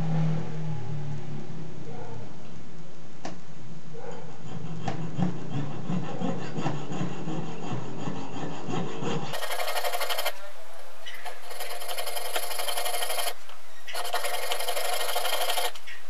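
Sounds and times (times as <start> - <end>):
saw rasping through metal: 5.0 - 15.8
sharp saw clicks: 9.3 - 10.4, 11.0 - 16.0.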